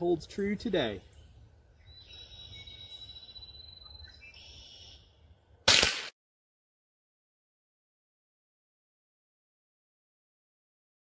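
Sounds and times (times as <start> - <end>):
rifle shot: 5.6 - 6.2.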